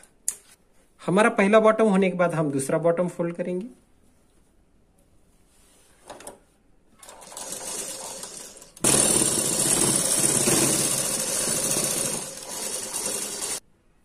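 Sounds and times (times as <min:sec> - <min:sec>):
sewing machine stitching: 0:07.0 - 0:13.6.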